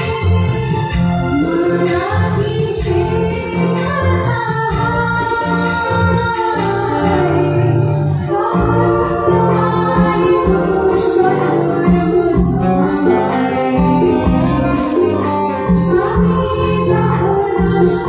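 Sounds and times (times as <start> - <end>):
live band accompaniment: 0.0 - 18.0
woman singing into microphone: 0.0 - 18.0.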